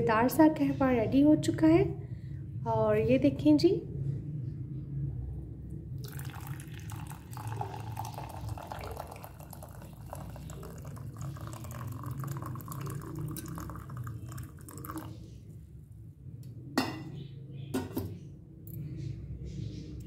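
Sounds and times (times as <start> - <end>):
tea pouring into mug: 6.0 - 15.4.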